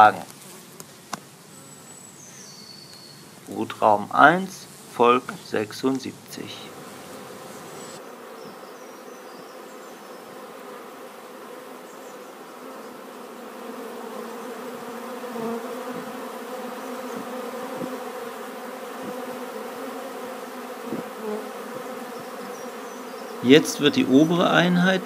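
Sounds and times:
honey bees buzzing: 0:00.0 - 0:25.0.

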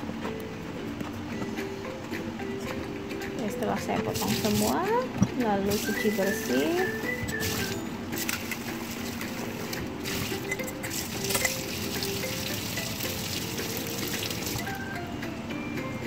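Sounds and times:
water splashing and dripping: 0:10.0 - 0:14.7.

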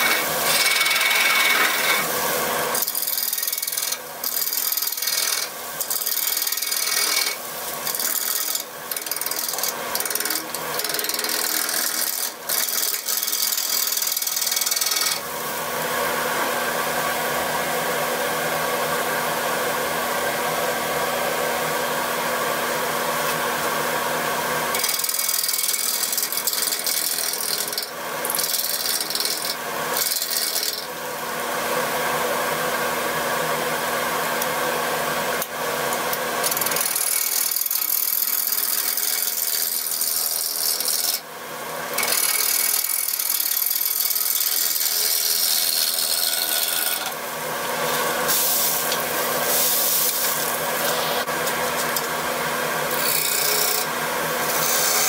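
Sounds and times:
gouge cutting on wood lathe: 0:00.0 - 0:16.5, 0:24.5 - 0:31.0, 0:36.4 - 0:41.2, 0:41.9 - 0:55.0.

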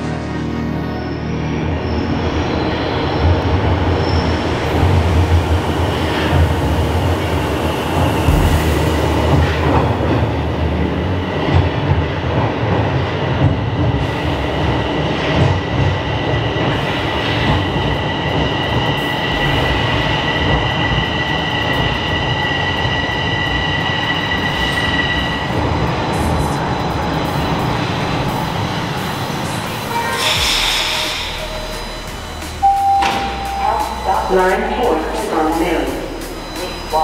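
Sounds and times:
subway train slowing to a stop: 0:00.0 - 0:37.0
high steady whine: 0:04.6 - 0:10.2.

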